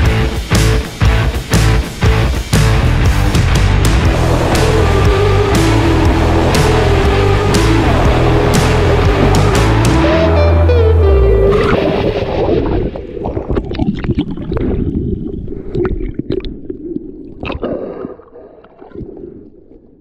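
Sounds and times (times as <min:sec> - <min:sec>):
water sloshing and gurgling: 0:11.5 - 0:20.0
water splashes: 0:11.5 - 0:20.0.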